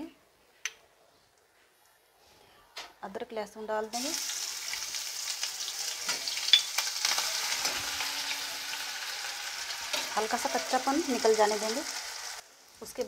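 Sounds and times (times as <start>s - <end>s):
spices sizzling in hot oil: 3.9s - 13.0s.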